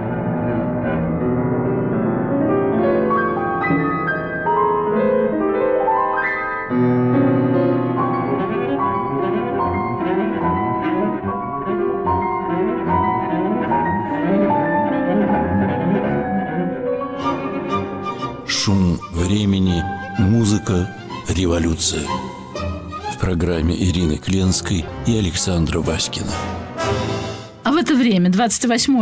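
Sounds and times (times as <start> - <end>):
piano: 0.0 - 29.0
bowed low string instrument: 7.5 - 27.6.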